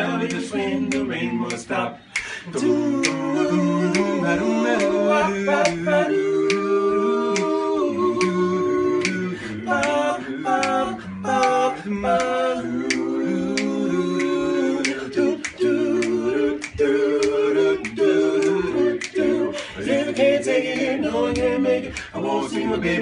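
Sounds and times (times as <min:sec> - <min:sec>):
male vocal group singing doo-wop: 0:00.0 - 0:23.0
finger snaps: 0:00.3 - 0:03.2, 0:06.4 - 0:06.7, 0:07.3 - 0:07.6, 0:09.0 - 0:09.2, 0:12.2 - 0:22.2.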